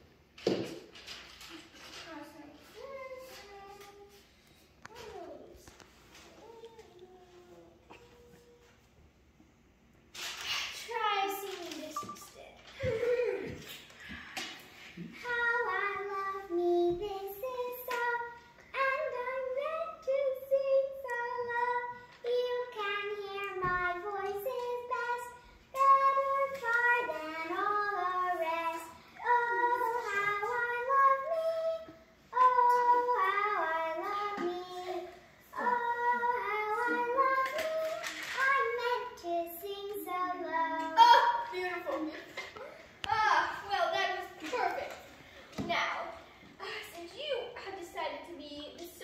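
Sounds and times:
child singing: 2.0 - 4.2, 15.2 - 42.2.

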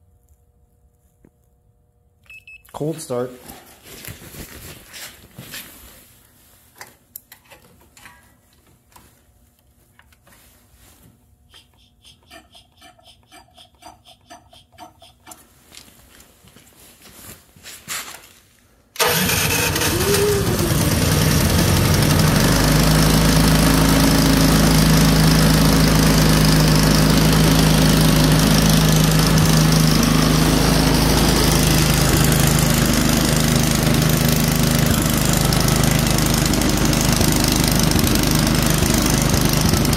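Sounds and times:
electric starter cranking: 19.0 - 39.9
snow blower engine running: 19.0 - 39.9.

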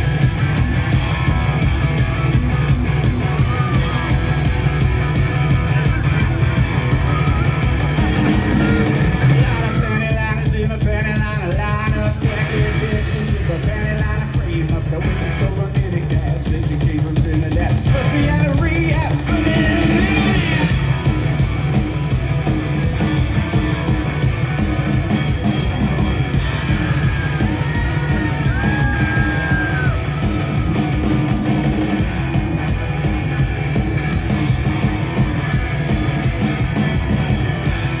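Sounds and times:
drums: 0.0 - 38.0
guitars: 0.0 - 38.0
keyboards: 0.0 - 38.0
vocals: 7.0 - 21.1.

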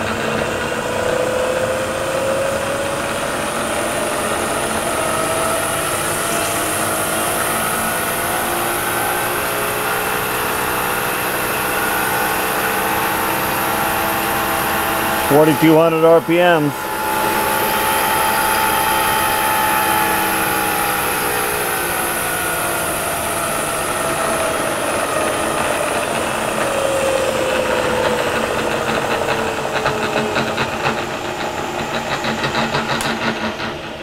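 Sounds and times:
milling machine motor whine: 0.0 - 34.0
rapid ratcheting clatter: 25.6 - 34.0.

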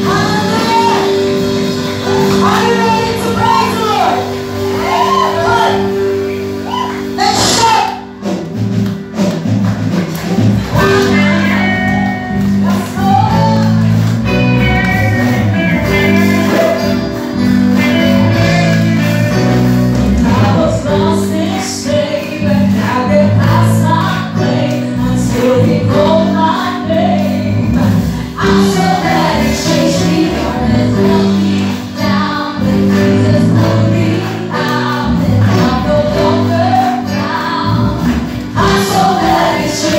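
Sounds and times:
women singing into microphones: 0.0 - 1.2, 20.1 - 39.9
drums: 0.0 - 39.9
electric guitar: 0.0 - 39.9.

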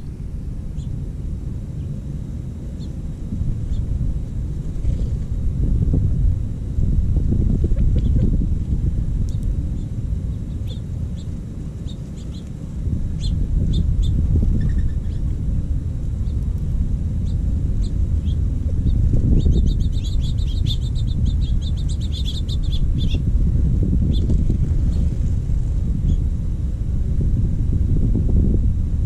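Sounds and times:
wind rumble on microphone: 0.0 - 29.0
small songbirds chirping: 0.7 - 1.0, 2.7 - 4.0, 9.2 - 15.5, 16.2 - 16.6, 17.2 - 23.3, 24.0 - 25.1, 26.0 - 26.3.

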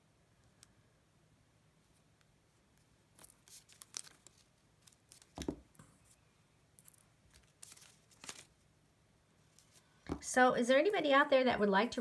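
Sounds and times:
glue dots peeling from paper: 3.1 - 5.6.

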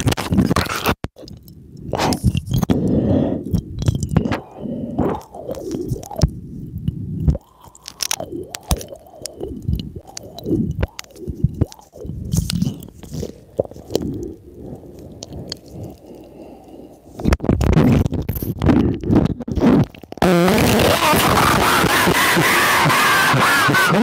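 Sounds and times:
chewing and wet mouth noises: 0.8 - 17.2.

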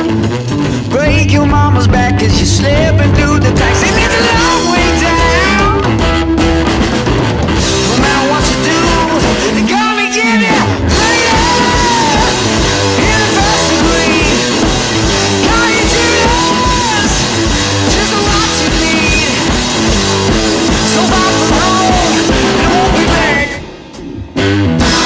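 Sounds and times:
electric guitar: 0.0 - 25.0
rock song: 0.0 - 25.0
steady drum beat: 0.0 - 25.0.

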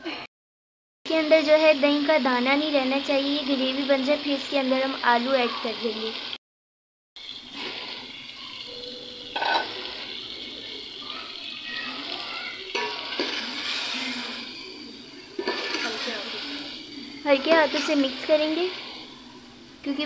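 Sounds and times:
gravy sizzling in a pot: 1.1 - 6.4, 7.2 - 20.0.

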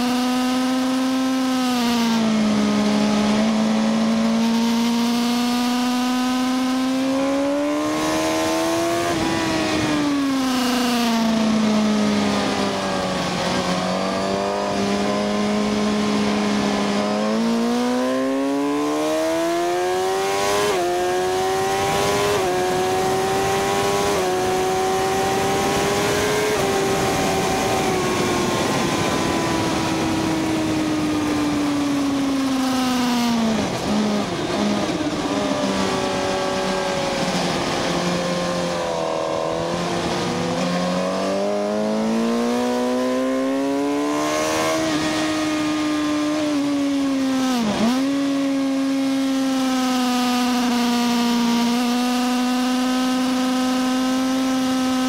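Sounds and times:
motorcycle engine revving: 0.0 - 55.0
wind rush: 21.8 - 42.6.

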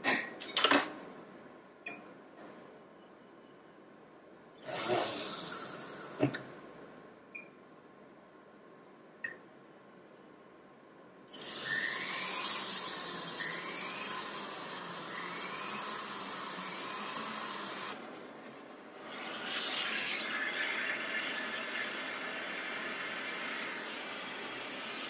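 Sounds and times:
soldering torch flame hissing: 4.6 - 6.2
drill bit squeal: 11.3 - 18.0
rotary handpiece drilling metal: 11.4 - 18.0.

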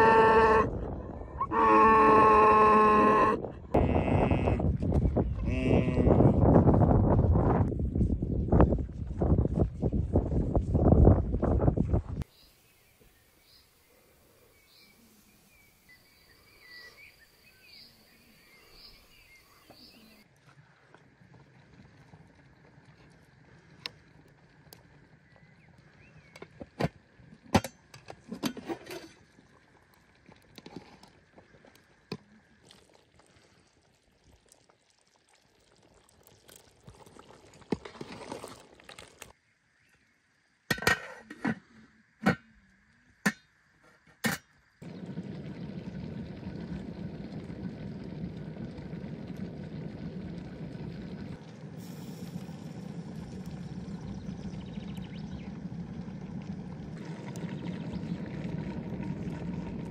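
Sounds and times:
liquid sloshing: 32.4 - 39.4.

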